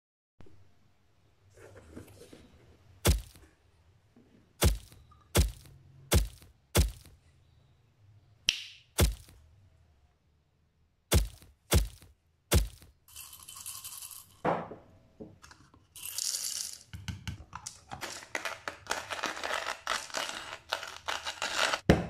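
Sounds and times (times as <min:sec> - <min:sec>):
sharp loud thuds: 0:03.1 - 0:03.4, 0:04.6 - 0:07.1, 0:09.0 - 0:09.3, 0:11.1 - 0:12.8.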